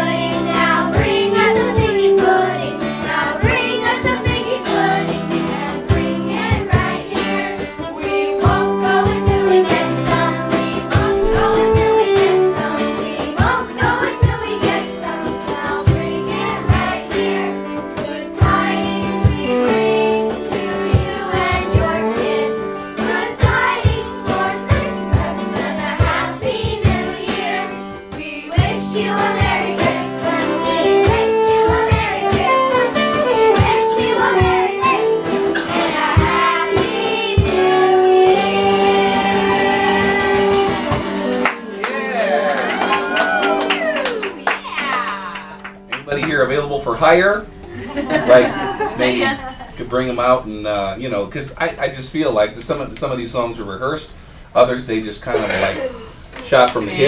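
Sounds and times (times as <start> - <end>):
children's choir singing: 0.0 - 41.3
small band playing: 0.0 - 50.6
strummed guitar: 0.0 - 54.4, 55.1 - 57.0.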